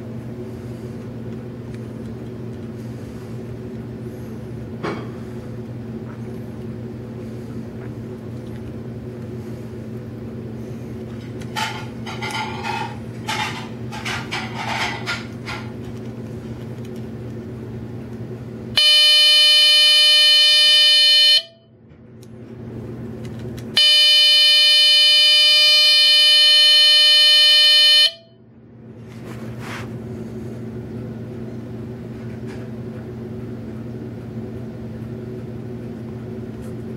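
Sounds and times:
steady low hum: 0:00.0 - 0:36.9
buzzy alarm tones: 0:18.8 - 0:21.6, 0:23.8 - 0:28.3.

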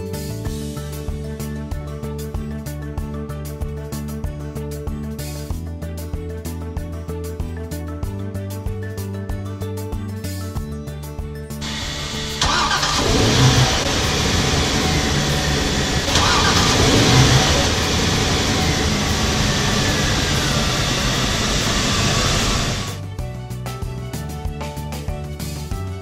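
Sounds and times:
boat engines starting and running: 0:11.6 - 0:23.0.

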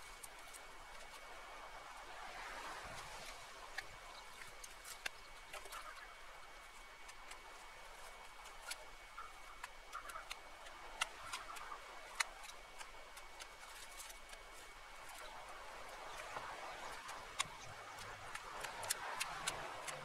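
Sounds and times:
dry twigs snapping: 0:06.7 - 0:15.4, 0:16.0 - 0:20.0.

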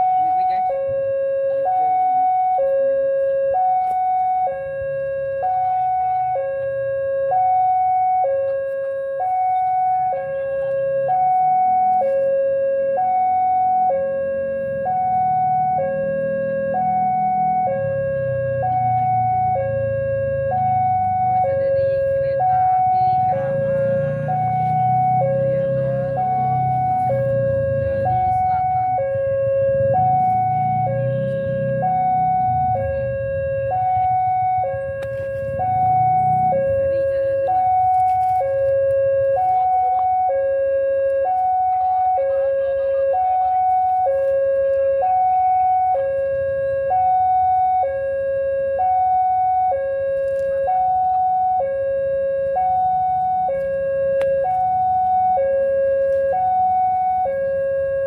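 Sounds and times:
two-tone crossing alarm: 0:00.0 - 0:58.0
low rumble: 0:14.5 - 0:40.2.

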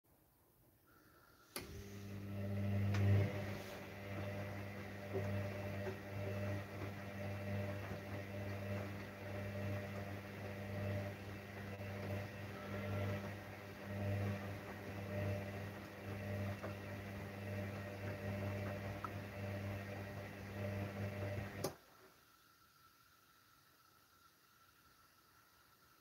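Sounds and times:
washing machine motor humming: 0:01.4 - 0:21.8.

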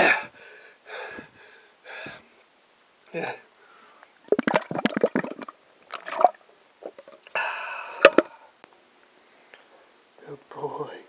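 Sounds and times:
gulping and swallowing: 0:04.3 - 0:07.2.

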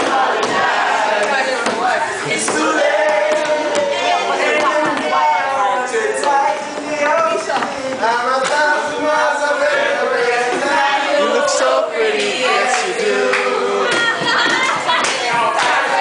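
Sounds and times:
group singing: 0:00.0 - 0:16.0
people talking: 0:00.6 - 0:16.0.

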